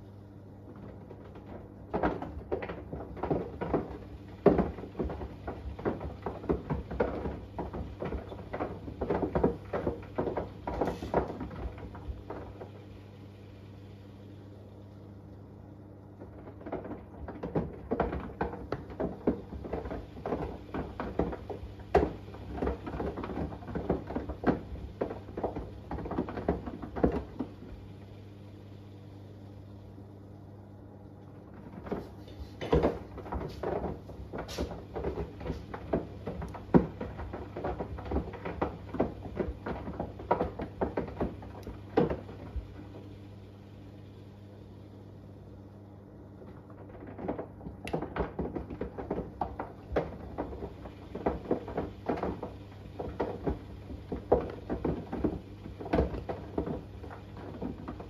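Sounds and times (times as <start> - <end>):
washing machine low hum: 0.0 - 58.0.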